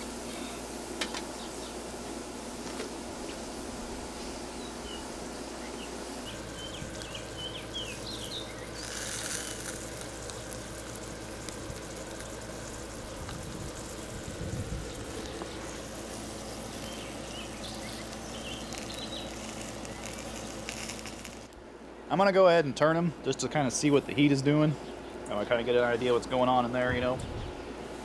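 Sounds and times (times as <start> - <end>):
patties sizzling on a grill: 0.0 - 21.6
bird chirping: 4.5 - 9.0, 16.7 - 20.8.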